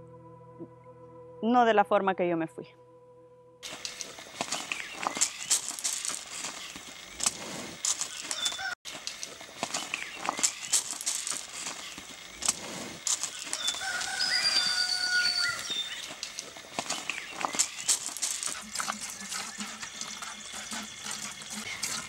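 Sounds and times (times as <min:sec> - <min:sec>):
rooster crowing: 0:08.2 - 0:08.8, 0:13.3 - 0:16.1.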